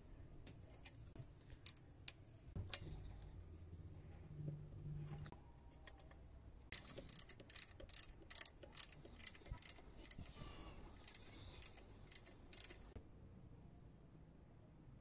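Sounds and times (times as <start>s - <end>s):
ratcheting screwdriver clicking: 6.7s - 10.4s, 11.0s - 12.9s.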